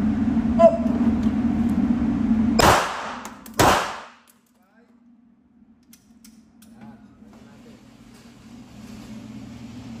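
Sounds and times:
pistol shots: 0:02.6 - 0:04.2.

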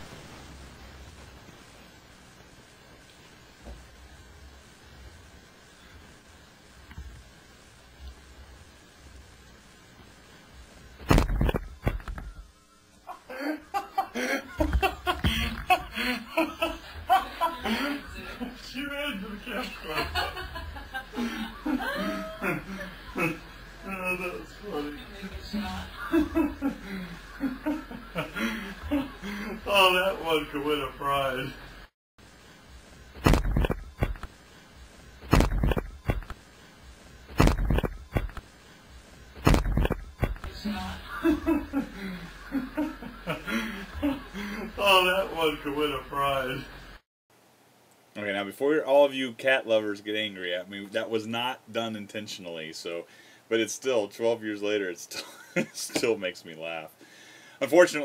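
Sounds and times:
person chuckling: 0:13.1 - 0:18.8, 0:19.6 - 0:29.8, 0:39.6 - 0:45.1, 0:55.2 - 0:56.0.

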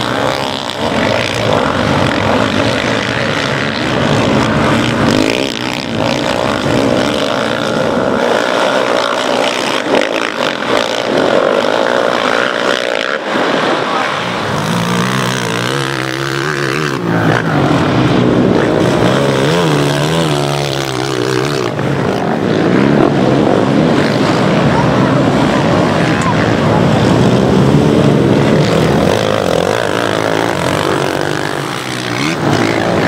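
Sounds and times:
quad engines revving: 0:00.0 - 0:33.0.

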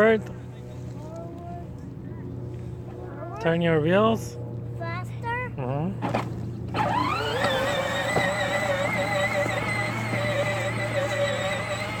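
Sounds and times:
electric toy motor whining: 0:06.7 - 0:12.0.

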